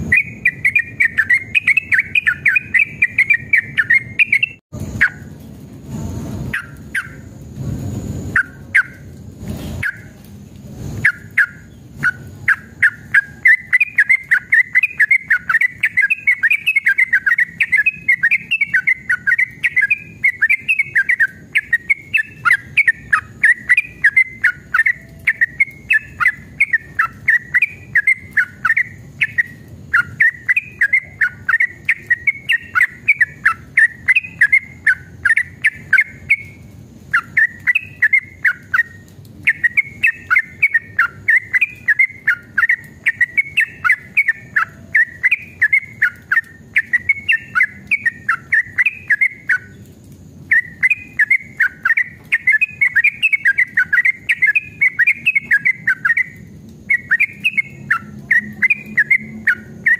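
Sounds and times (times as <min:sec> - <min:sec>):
bird chattering song: 0:00.0 - 0:05.3, 0:06.5 - 0:07.3, 0:08.3 - 0:10.2, 0:11.0 - 0:59.9
faint low rumble: 0:00.0 - 0:59.9.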